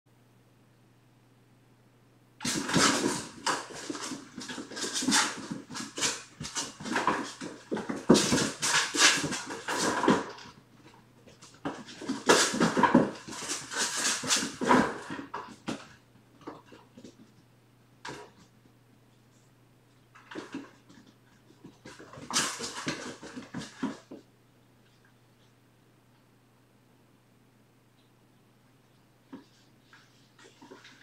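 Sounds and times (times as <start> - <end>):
kittens running on hard floor: 2.4 - 17.4, 20.1 - 24.3.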